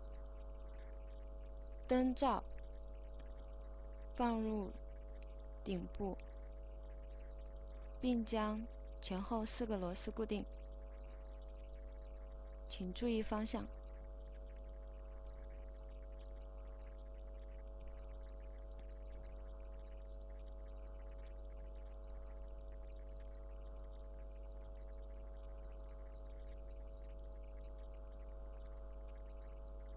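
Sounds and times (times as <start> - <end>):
steady electrical hum: 0.0 - 29.9.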